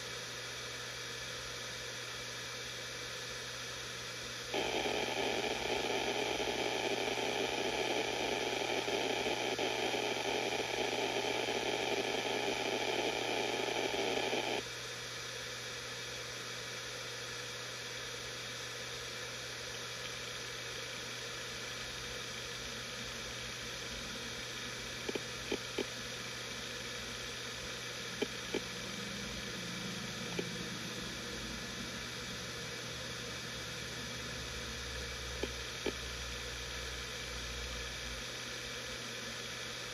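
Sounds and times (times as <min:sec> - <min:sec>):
hard drive humming: 0:00.0 - 0:14.7, 0:19.2 - 0:39.9
loud hiss: 0:04.5 - 0:14.6.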